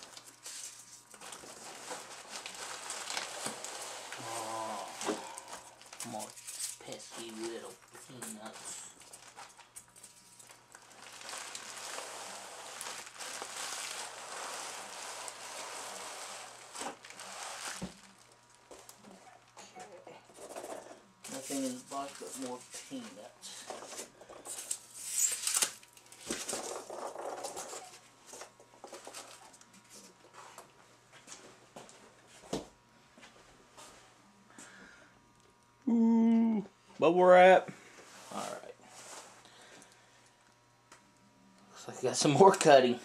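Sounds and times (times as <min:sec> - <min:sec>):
packing peanuts rustling: 0:00.0 - 0:19.2, 0:21.2 - 0:23.3, 0:24.5 - 0:28.0
bubble wrap crinkling: 0:00.0 - 0:19.5, 0:21.2 - 0:23.3, 0:24.5 - 0:29.8.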